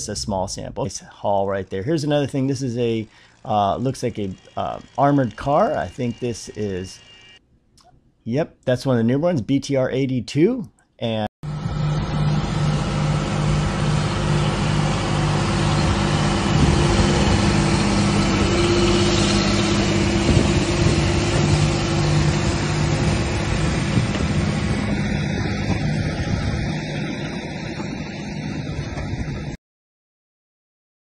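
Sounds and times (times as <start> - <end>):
tractor diesel engine running: 0.0 - 7.4, 11.4 - 29.6
tyres rumbling on muddy road: 11.5 - 29.5.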